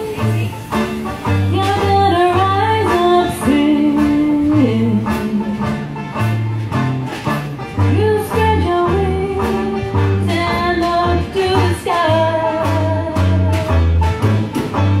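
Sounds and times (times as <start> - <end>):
woman singing jazz ballad: 0.0 - 6.0, 7.8 - 13.6
bass notes: 0.0 - 15.0
jazz band playing: 0.0 - 15.0.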